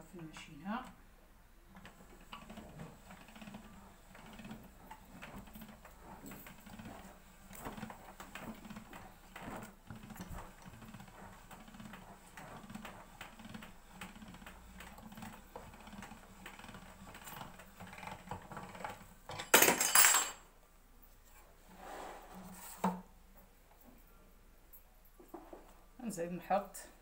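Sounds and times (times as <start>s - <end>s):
pasta machine rollers rumbling: 0.0s - 19.6s.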